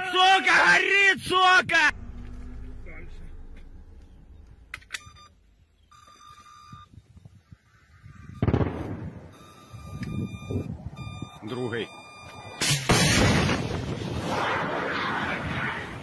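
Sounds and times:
low rumble: 0:01.8 - 0:05.3
electronic beeping tone: 0:05.0 - 0:07.0, 0:09.3 - 0:12.6
burst of rushing noise: 0:12.6 - 0:16.0.

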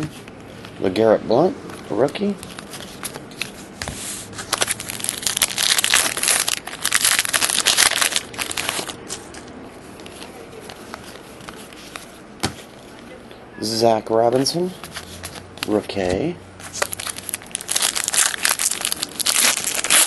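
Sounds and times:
cards rustling: 0:01.6 - 0:13.0, 0:14.3 - 0:20.0
card pack wrapper crinkling: 0:04.4 - 0:09.2, 0:16.6 - 0:20.0.

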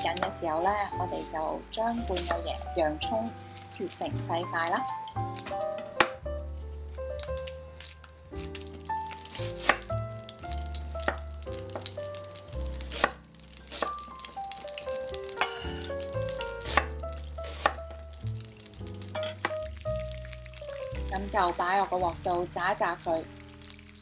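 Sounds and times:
background music with bass: 0:04.2 - 0:24.0
knife chopping on wooden board: 0:09.5 - 0:09.9, 0:11.0 - 0:12.0, 0:12.9 - 0:14.1, 0:16.6 - 0:17.9.

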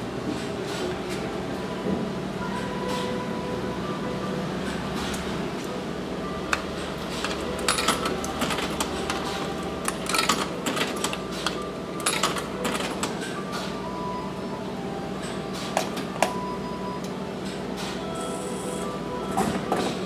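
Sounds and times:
steady hum: 0:00.0 - 0:19.8
coins clinking into vending machine: 0:07.0 - 0:13.4.

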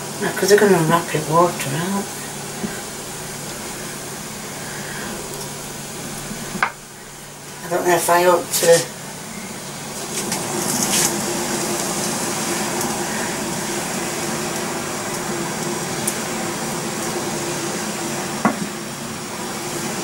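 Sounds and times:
water boiling in saucepan: 0:00.0 - 0:20.0.

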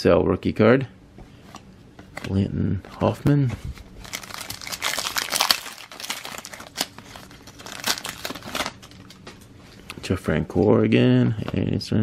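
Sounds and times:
plastic wrapper crinkling: 0:03.6 - 0:09.5.

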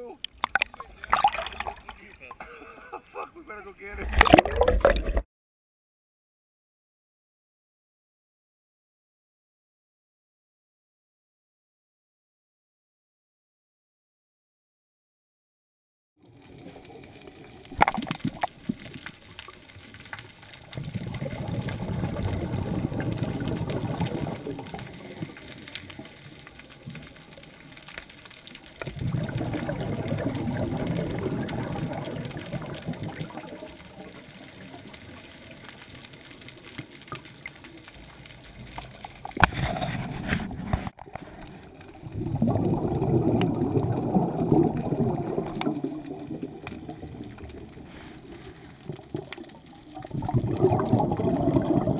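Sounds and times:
underwater exhaust bubbles: 0:00.2 - 0:02.1, 0:04.0 - 0:05.2, 0:16.2 - 0:51.9.

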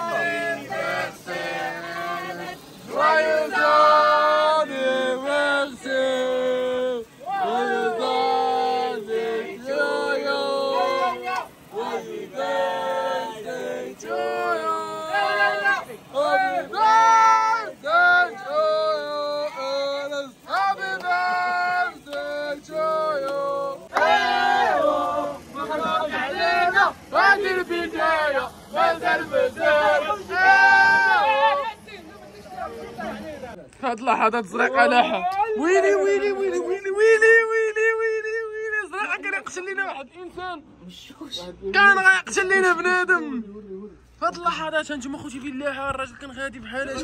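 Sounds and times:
voices chanting long notes: 0:00.0 - 0:32.0.

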